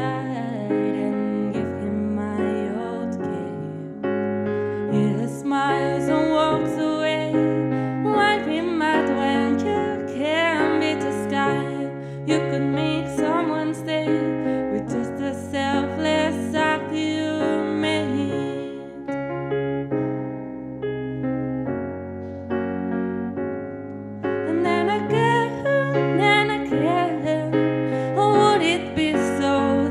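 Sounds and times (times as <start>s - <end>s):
woman singing: 0.0s - 4.1s, 4.9s - 19.1s, 24.4s - 29.9s
keyboard playing piano sound: 0.0s - 29.9s.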